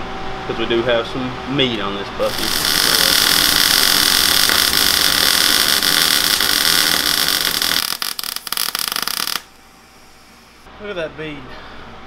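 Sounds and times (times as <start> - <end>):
welder arc crackling and sputtering: 2.2 - 9.5.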